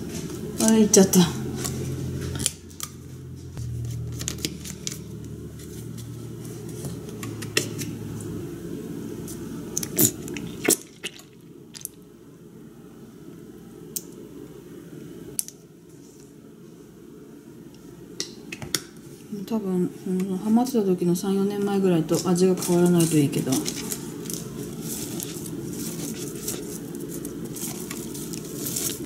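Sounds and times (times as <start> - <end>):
low hum: 0.0 - 9.6.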